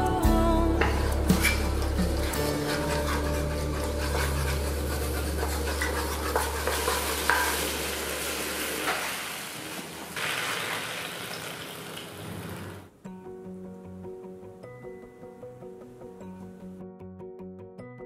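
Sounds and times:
spatula scraping and tapping metal: 0.8s - 7.7s
sauce sizzling and bubbling in a wok: 1.0s - 12.9s.

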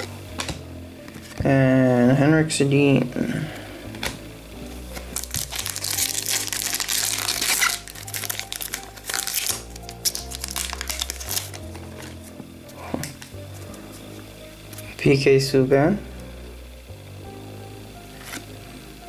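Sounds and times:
background music with bass: 0.0s - 19.0s
foil wrapper crinkling and tearing: 4.9s - 13.4s.

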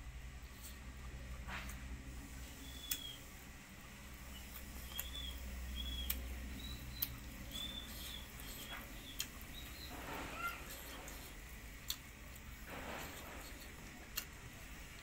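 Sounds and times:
mouth clicks and wet smacks: 8.0s - 9.6s, 11.8s - 12.5s.

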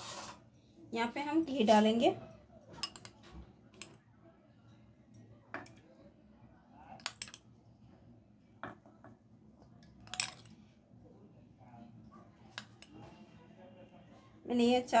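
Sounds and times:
spoon scraping ceramic bowl: 0.0s - 0.4s.

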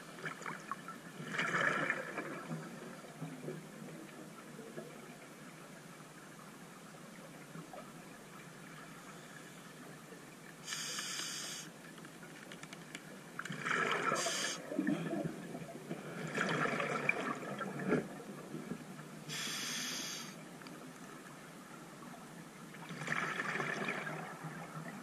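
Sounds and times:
exhaled bubbles burbling: 0.3s - 2.8s, 13.6s - 18.2s, 22.8s - 25.0s
regulator inhalation hiss: 10.6s - 11.7s, 14.2s - 14.6s, 19.3s - 20.4s.

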